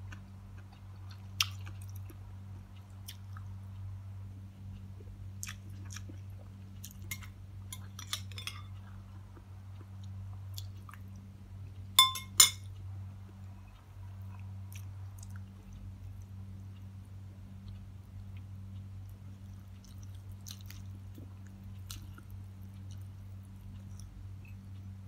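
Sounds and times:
quiet chewing: 0.0 - 3.9, 4.6 - 11.9, 12.6 - 25.0
steady low hum: 0.0 - 25.0
metal spoon clinking on plate: 7.1 - 8.7, 12.0 - 12.7.

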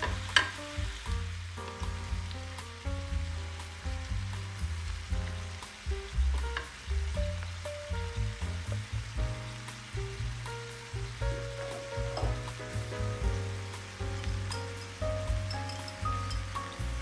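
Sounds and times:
wooden spatula scraping a pan: 0.0 - 1.0
background music with bass: 0.0 - 17.0
food sizzling in a frying pan: 0.0 - 17.0.

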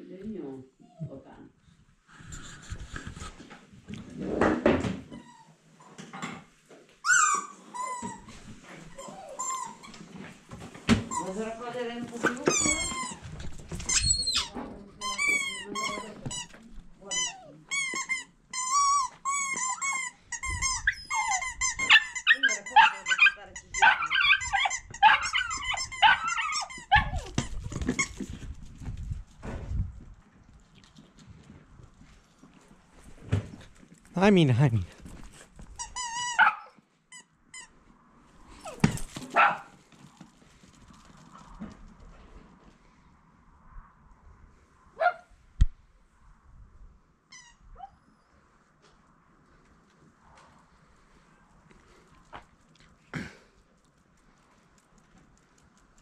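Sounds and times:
small dog whining: 0.8 - 1.2, 7.0 - 10.0, 13.9 - 16.1, 18.6 - 28.0
dog barking: 21.9 - 27.2, 36.4 - 36.8, 39.3 - 39.7, 45.0 - 45.3.

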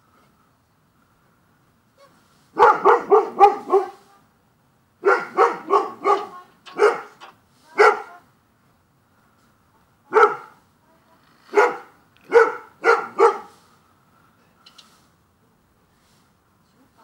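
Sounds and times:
dog barking: 2.0 - 4.1, 5.0 - 7.2, 7.8 - 8.2, 10.1 - 10.6, 11.5 - 13.6.

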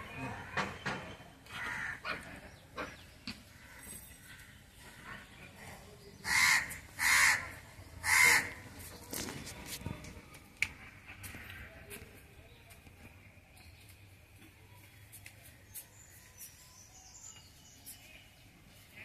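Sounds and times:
bird cawing: 1.5 - 2.1.

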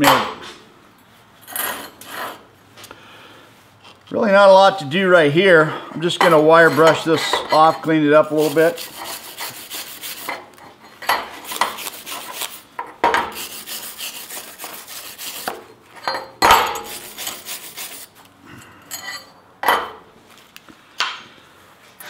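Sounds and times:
wire brush scrubbing metal: 6.0 - 10.5, 11.3 - 15.7, 16.6 - 18.2.

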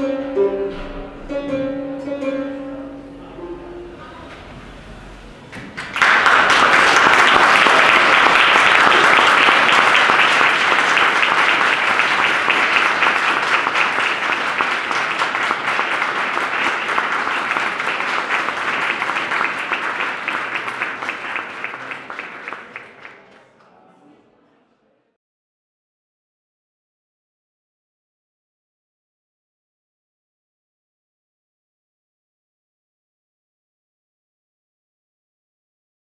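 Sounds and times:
audience applauding: 5.5 - 23.8.

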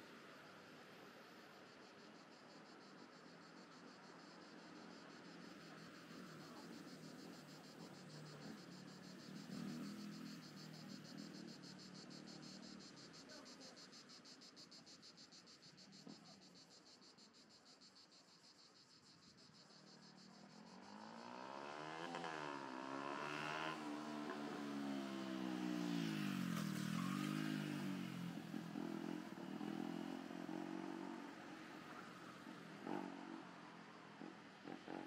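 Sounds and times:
faint road traffic: 0.0 - 35.0
cicadas buzzing: 1.7 - 35.0
car passing close: 20.4 - 35.0.

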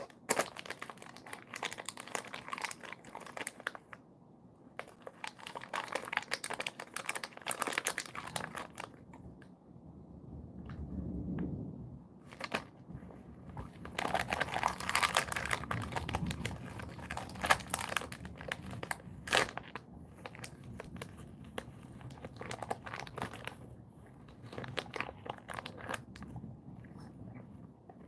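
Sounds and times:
plastic wrappers crinkling: 0.0 - 4.0, 4.8 - 9.1, 12.3 - 12.8, 13.4 - 26.4.

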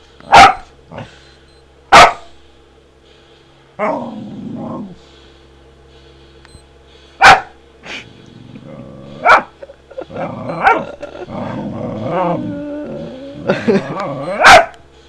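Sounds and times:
dog barking: 0.2 - 0.7, 1.9 - 2.3, 7.2 - 7.6, 9.2 - 9.6, 10.5 - 11.0, 14.3 - 14.8
dog growling and grumbling: 0.9 - 1.2, 3.8 - 5.0, 8.0 - 14.5.

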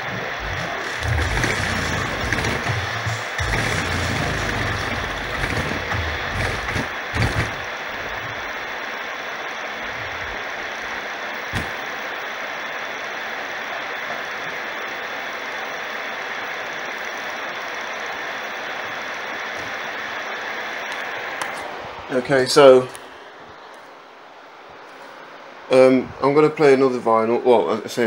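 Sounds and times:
music with deep bass: 0.0 - 7.6
mechanical whirr and hiss: 0.0 - 22.0.

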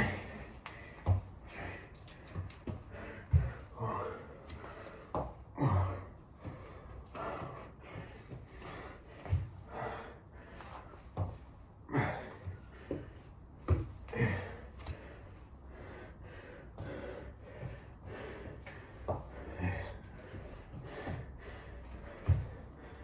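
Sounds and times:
man breathing hard: 0.0 - 23.0
foot landing thud: 13.7 - 14.5.

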